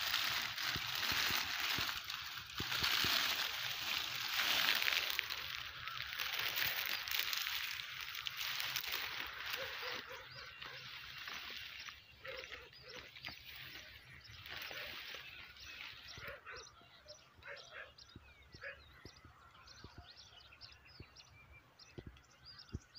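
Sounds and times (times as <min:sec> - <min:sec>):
rustling brushing noise: 0:00.0 - 0:16.4
bird chirps: 0:00.7 - 0:22.9.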